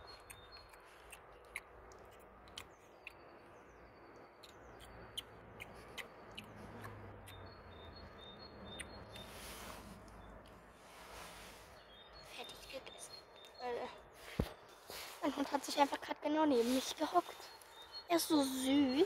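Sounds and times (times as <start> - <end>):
bird chirping: 0.0 - 19.0
plastic toy rustling in grass: 14.2 - 17.6.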